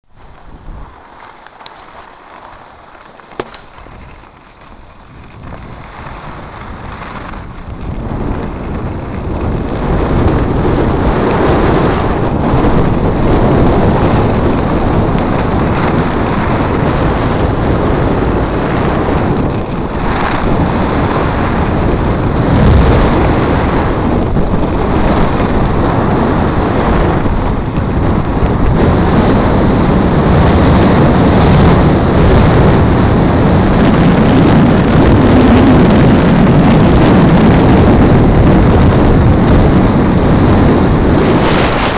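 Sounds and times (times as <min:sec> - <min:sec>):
wind rushing over microphone: 0:00.0 - 0:41.9
skis carving on snow: 0:00.1 - 0:41.9.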